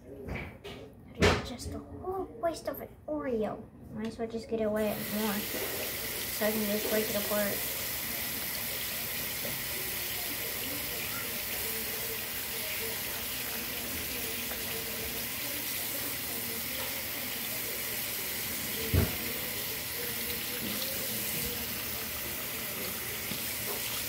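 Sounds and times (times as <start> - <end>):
tap water running into sink: 4.9 - 24.0.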